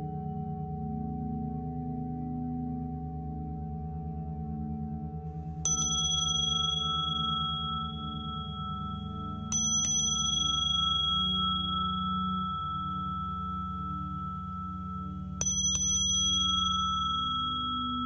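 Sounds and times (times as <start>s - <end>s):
singing bowl low pulsing hum: 0.0s - 18.0s
high-pitched bowl strikes ringing: 5.6s - 18.0s.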